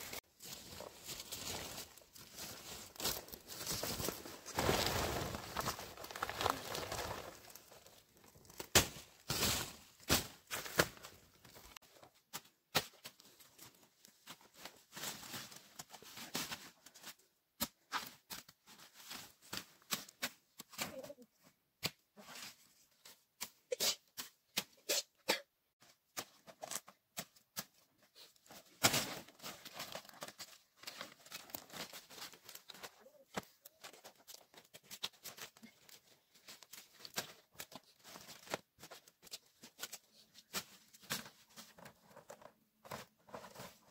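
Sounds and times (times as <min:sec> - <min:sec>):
dry leaves crackling: 0:00.4 - 0:07.8.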